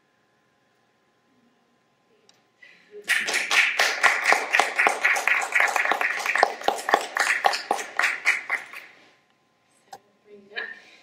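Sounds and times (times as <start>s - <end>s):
audience applauding: 3.1s - 9.0s.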